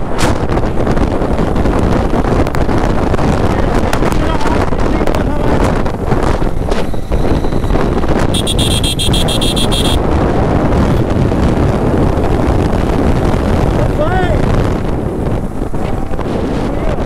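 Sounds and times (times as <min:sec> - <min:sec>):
motorcycle running: 0:00.0 - 0:17.0
wind rushing over microphone: 0:00.0 - 0:17.0
high-pitched vehicle horn: 0:08.3 - 0:10.0.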